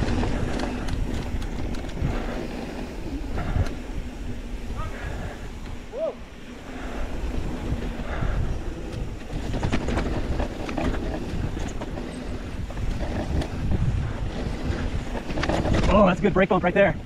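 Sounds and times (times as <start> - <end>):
bike rattling and clicking: 0.0 - 17.0
rumble of tyres and air: 0.0 - 17.0.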